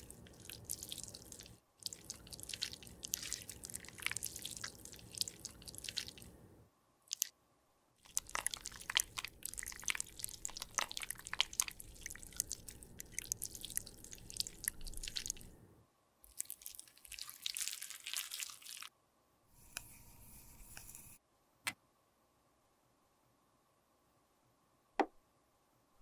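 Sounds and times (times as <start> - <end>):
spatula mashing paste in jar: 8.0 - 15.4.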